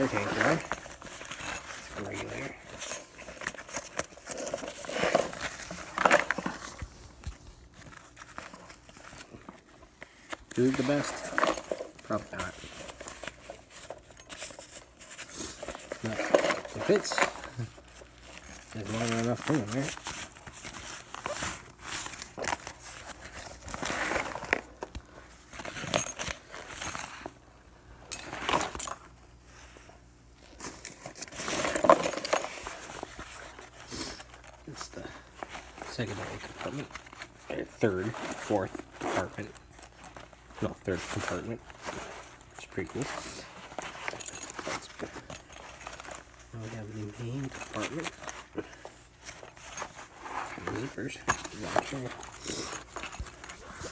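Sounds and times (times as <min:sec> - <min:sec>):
nylon fabric rustling: 0:00.0 - 0:24.8
small metal clinks: 0:50.8 - 0:53.9.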